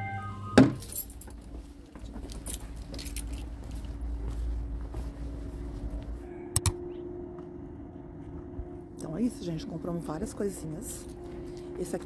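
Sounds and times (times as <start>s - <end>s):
metallic jingling and clinking: 0.8s - 1.4s, 2.2s - 3.7s
steady low rumble: 1.4s - 12.0s.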